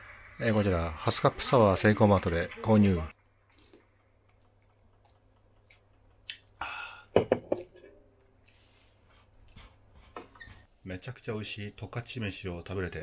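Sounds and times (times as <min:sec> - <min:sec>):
man sipping and swallowing: 0:03.4 - 0:07.2
breathy exhale: 0:06.6 - 0:07.2.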